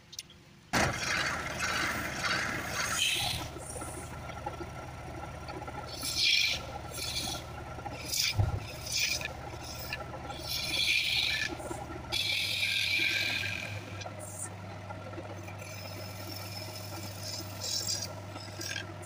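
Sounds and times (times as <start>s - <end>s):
chisel cutting wood on lathe: 0.8s - 19.0s
lathe motor hum: 0.8s - 19.0s.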